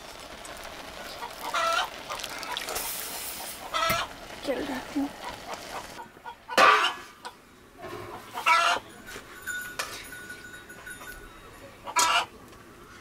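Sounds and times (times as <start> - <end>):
chickens clucking: 1.2 - 4.1, 5.2 - 8.9, 11.8 - 12.3.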